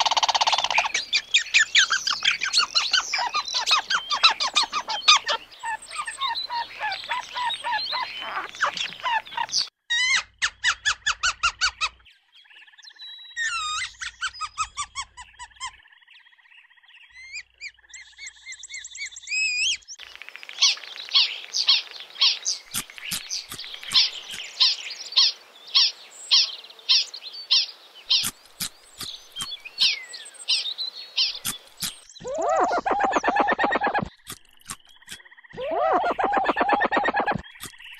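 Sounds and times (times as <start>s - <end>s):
ground squirrel chirping: 0.0s - 11.9s, 21.7s - 30.6s, 31.2s - 37.9s
sharp clicks: 22.7s - 24.5s, 28.1s - 29.7s, 33.8s - 35.2s, 37.2s - 37.9s.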